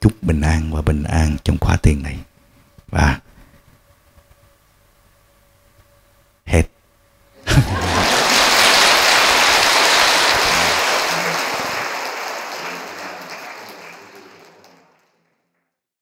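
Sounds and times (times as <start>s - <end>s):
crowd applauding: 7.5s - 15.4s.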